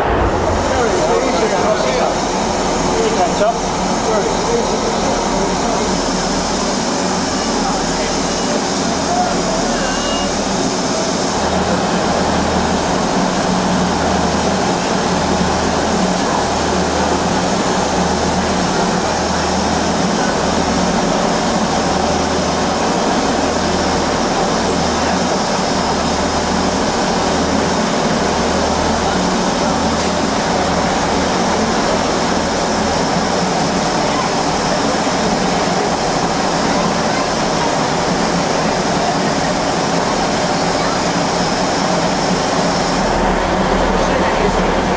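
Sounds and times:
low rumble: 0.0s - 5.2s
steam hissing: 0.0s - 44.9s.

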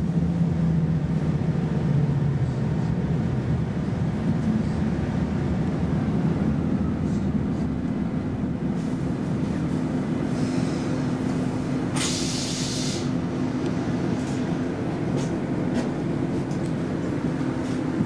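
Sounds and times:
railcar rumble and hum: 0.0s - 18.0s
short hiss: 12.0s - 13.1s.

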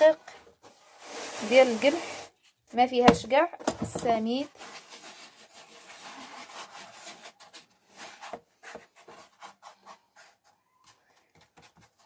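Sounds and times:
hands rubbing dough: 0.8s - 3.3s.

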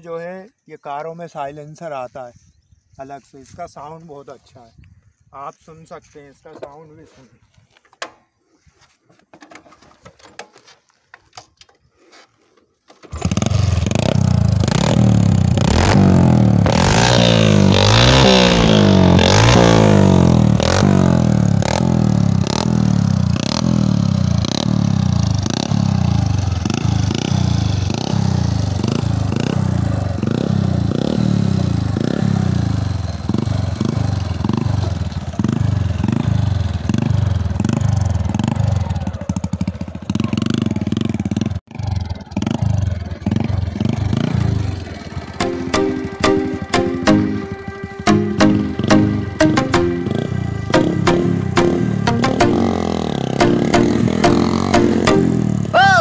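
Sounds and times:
motorcycle engine revving: 13.1s - 55.8s.

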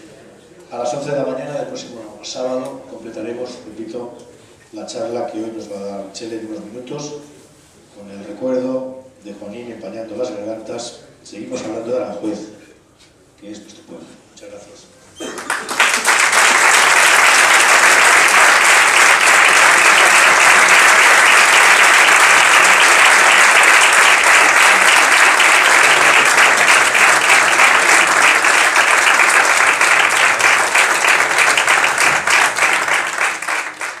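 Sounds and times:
audience applauding: 15.2s - 34.0s.

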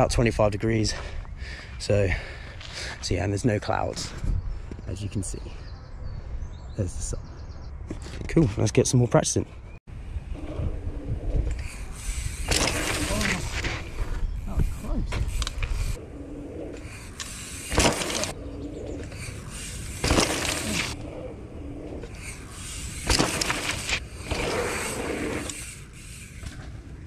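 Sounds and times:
wind buffeting microphone: 3.6s - 8.7s, 9.6s - 25.7s
bike tyres rolling on dirt: 10.0s - 27.0s
bike landing thump: 12.4s - 14.2s, 17.6s - 18.3s, 20.0s - 21.0s, 23.0s - 24.6s.

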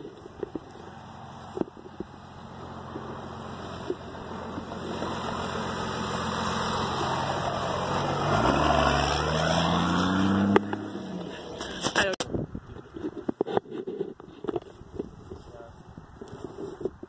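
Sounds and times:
tyres on gravel: 0.0s - 17.0s
pickup truck engine revving: 2.1s - 11.9s.

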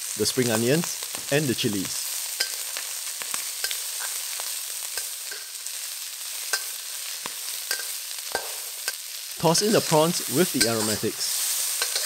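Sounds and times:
vegetables sizzling in hot oil: 0.0s - 12.0s
metal spatula scraping a wok: 3.6s - 5.7s, 6.4s - 12.0s.

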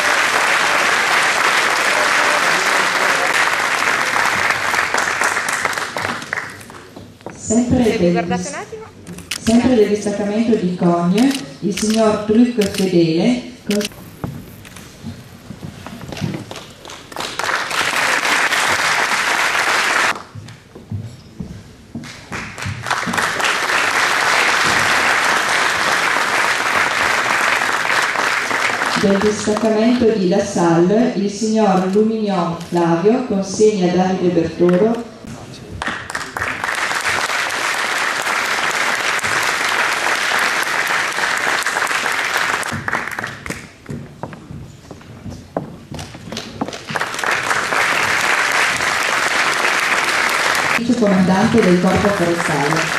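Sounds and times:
audience applauding: 0.0s - 7.0s, 16.4s - 20.3s, 22.0s - 29.7s, 35.8s - 43.9s, 46.4s - 52.9s.

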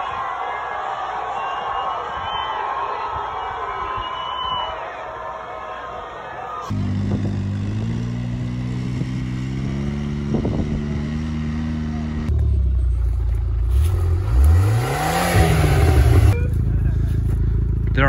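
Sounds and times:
atv engine running: 6.7s - 18.0s
car engine idling and revving: 6.7s - 18.0s.

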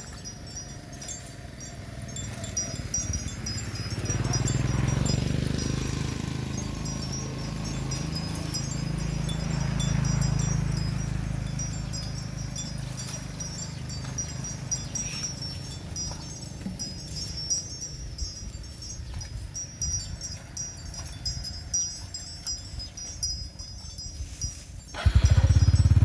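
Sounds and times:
high tinkling chirps: 0.0s - 26.0s.

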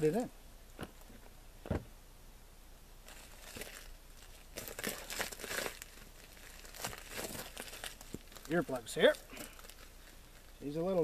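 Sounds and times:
soft thump: 1.6s - 2.0s
wrapper crinkling and rustling: 3.1s - 11.0s.

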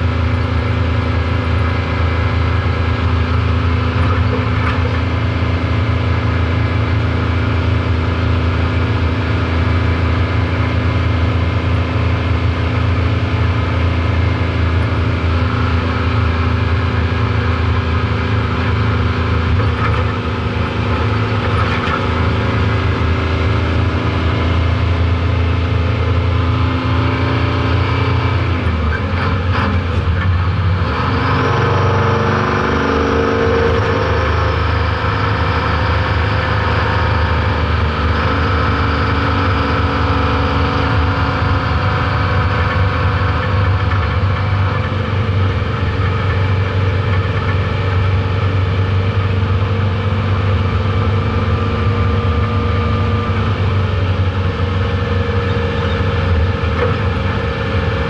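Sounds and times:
truck engine running: 0.0s - 58.0s
engine knocks: 3.7s - 5.3s.

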